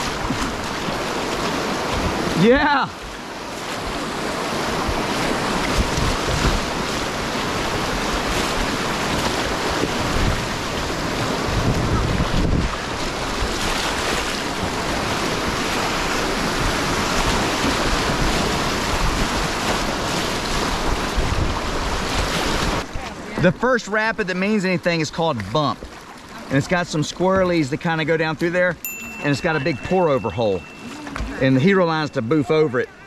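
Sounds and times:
whitewater rushing: 0:00.0 - 0:33.0
wind buffeting microphone: 0:03.8 - 0:22.8.

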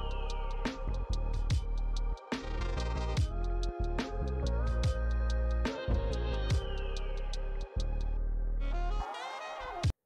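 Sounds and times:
electronic music with deep bass: 0:00.0 - 0:09.0.

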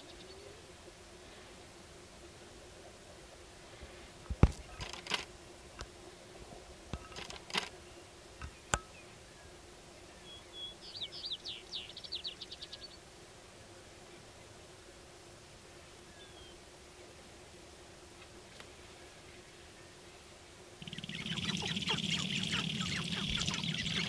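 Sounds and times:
songbird trilling: 0:20.8 - 0:24.0.

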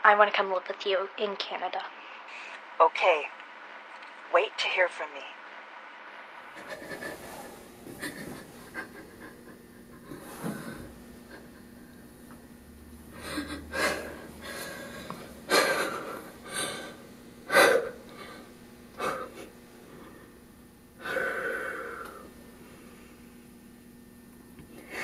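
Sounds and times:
girl crying with gasping breaths: 0:13.2 - 0:18.4.

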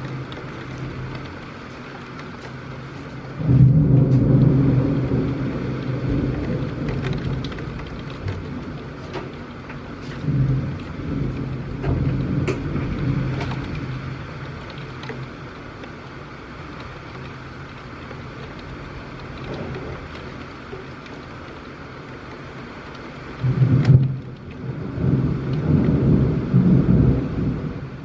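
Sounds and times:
steady rain: 0:00.0 - 0:28.0
rolling thunder: 0:03.3 - 0:15.4, 0:23.4 - 0:28.0.

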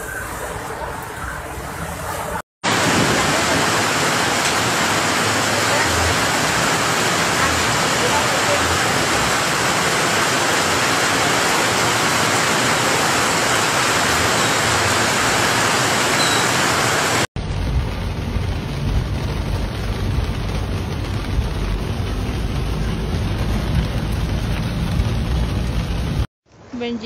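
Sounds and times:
heavy rain pouring: 0:00.0 - 0:26.3
rain heard inside a car: 0:02.7 - 0:26.3
low rumble: 0:17.4 - 0:26.3.

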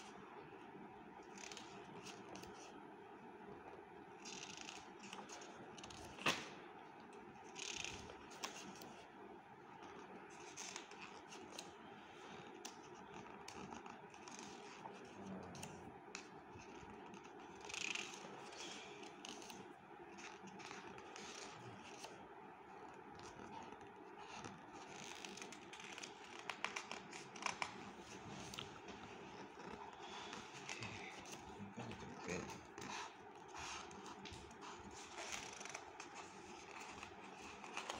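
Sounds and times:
book pages rustling: 0:12.3 - 0:22.2, 0:22.8 - 0:37.9.

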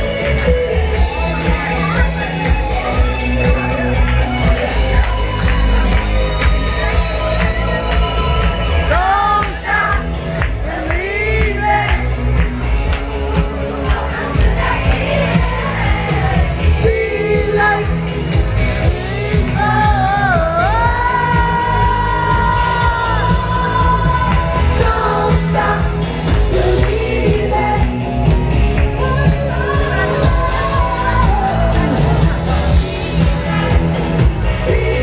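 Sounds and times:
bass beat: 0:00.0 - 0:35.0
pop dance music: 0:00.0 - 0:35.0
person singing: 0:05.8 - 0:12.2, 0:13.6 - 0:35.0.

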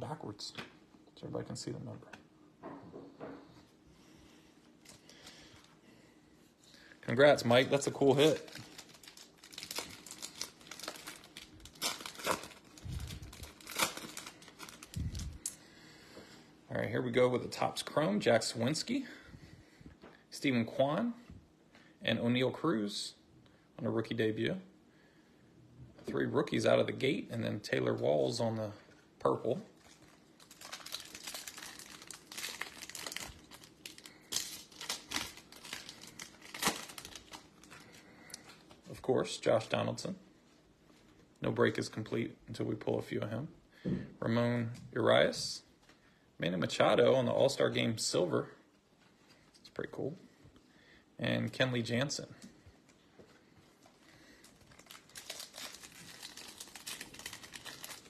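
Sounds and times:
foil wrapper tearing and crinkling: 0:07.5 - 0:15.3, 0:29.8 - 0:38.0, 0:54.4 - 0:58.0.

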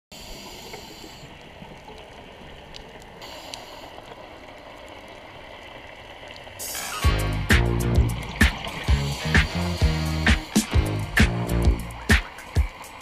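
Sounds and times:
underwater rush of water: 0:00.2 - 0:13.0
faint clicks: 0:00.6 - 0:07.0.

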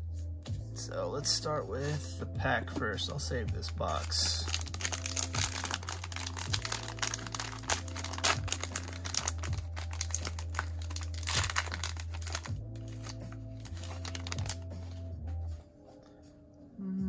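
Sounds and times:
plastic wrapper crinkling: 0:04.0 - 0:14.9.

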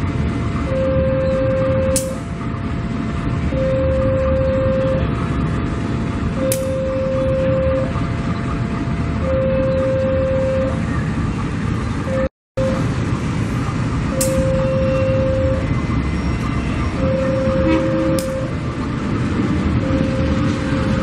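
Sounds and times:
diesel locomotive rumble: 0:00.0 - 0:21.0
two-tone level crossing alarm: 0:00.6 - 0:02.3, 0:03.3 - 0:05.2, 0:06.3 - 0:08.1, 0:08.8 - 0:10.8, 0:12.1 - 0:12.9, 0:14.0 - 0:18.8, 0:19.7 - 0:21.0.

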